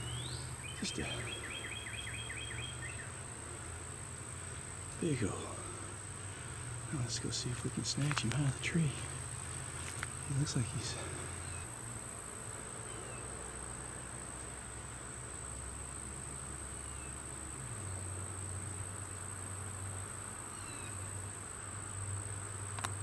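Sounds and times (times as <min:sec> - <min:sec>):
bird chirps: 0:00.0 - 0:03.2
insects trilling: 0:00.0 - 0:23.0.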